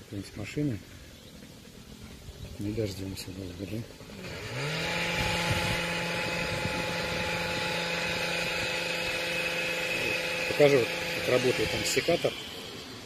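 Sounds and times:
hedge trimmer engine revving: 0:03.3 - 0:13.0.

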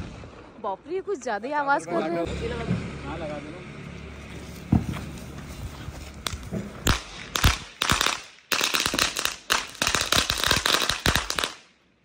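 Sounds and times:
firecrackers bursting: 0:05.7 - 0:11.8.

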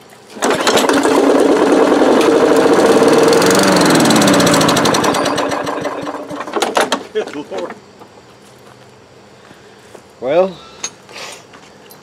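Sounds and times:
lawn mower engine running rough: 0:00.2 - 0:07.1.

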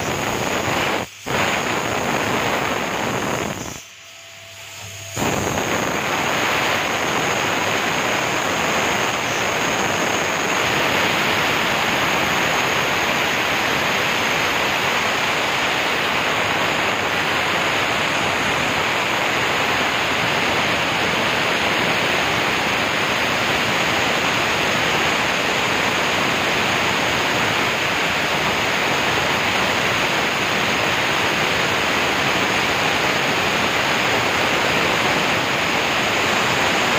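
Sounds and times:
router bit cutting board: 0:00.0 - 0:18.4
thin high spindle whine: 0:00.0 - 0:36.9.

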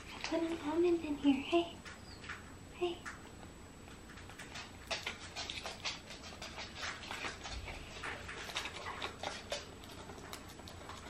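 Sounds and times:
parrot beak clicking and scratching: 0:03.9 - 0:11.0.

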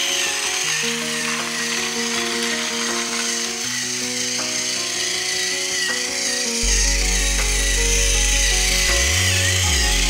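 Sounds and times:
background music: 0:00.0 - 0:10.0
toy train motor whirring: 0:00.0 - 0:10.0
deep bass line: 0:06.6 - 0:10.0.

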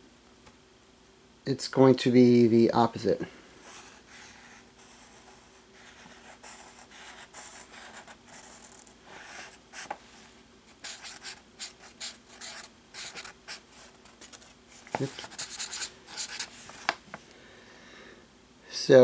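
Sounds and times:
marker pen scratching on paper: 0:03.6 - 0:10.0, 0:10.8 - 0:16.5.

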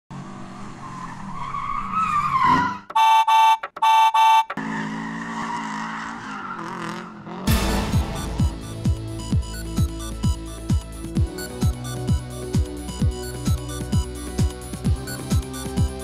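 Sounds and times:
tyre squeal: 0:00.9 - 0:06.7
loud beeps: 0:02.9 - 0:04.6, 0:07.5 - 0:10.8.

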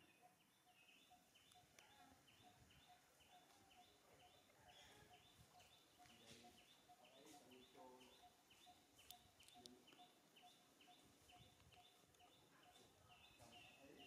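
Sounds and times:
small clicks: 0:09.0 - 0:10.0.

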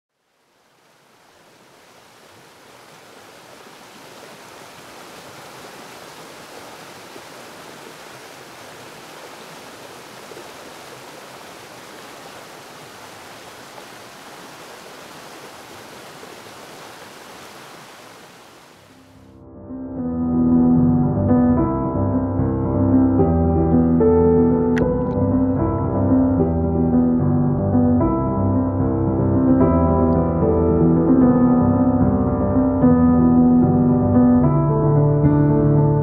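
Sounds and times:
stream water rushing: 0:00.2 - 0:19.2.

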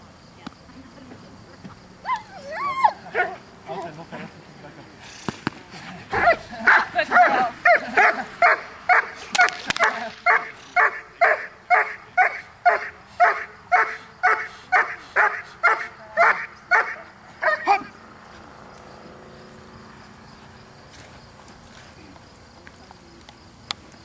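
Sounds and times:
dog barking: 0:06.2 - 0:17.9
sharp cracks: 0:08.9 - 0:10.3.

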